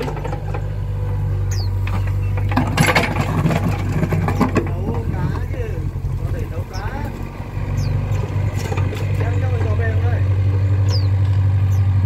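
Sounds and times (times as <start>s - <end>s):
diesel engine running: 0.0s - 12.0s
bucket scraping wet mud: 1.9s - 10.0s.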